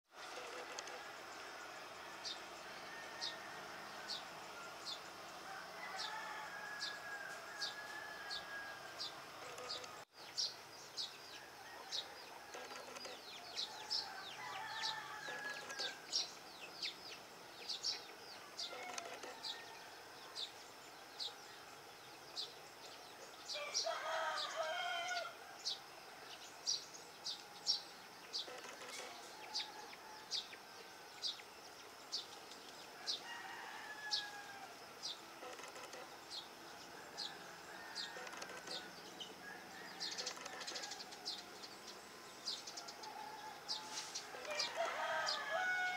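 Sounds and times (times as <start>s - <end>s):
rooster crowing: 2.1s - 4.7s, 5.4s - 10.0s, 11.4s - 16.2s, 18.6s - 20.1s, 23.5s - 25.4s, 33.0s - 36.1s, 37.0s - 41.2s, 42.7s - 45.9s.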